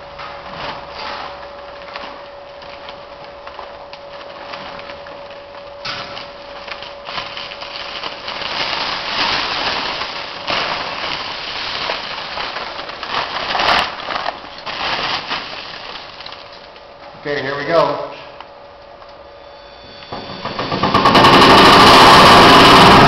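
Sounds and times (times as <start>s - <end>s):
faint machine hum: 0.0s - 23.0s
sawdust pouring into bag: 6.9s - 16.3s, 20.4s - 23.0s.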